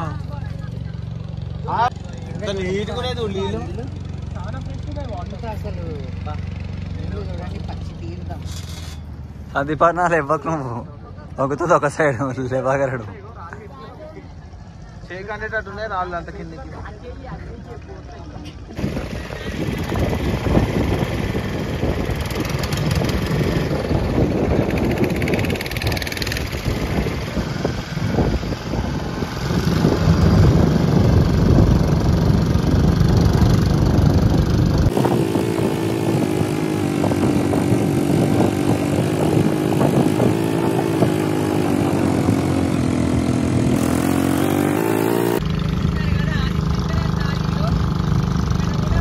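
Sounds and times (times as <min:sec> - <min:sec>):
water and wind noise: 0:18.8 - 0:46.2
motorboat engine droning: 0:18.8 - 0:49.0.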